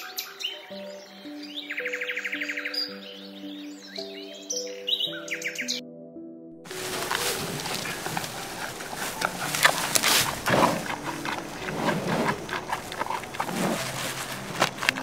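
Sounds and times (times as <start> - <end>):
bamboo cracking and snapping: 6.7 - 11.6, 12.2 - 15.0
panda chewing bamboo: 6.7 - 15.0.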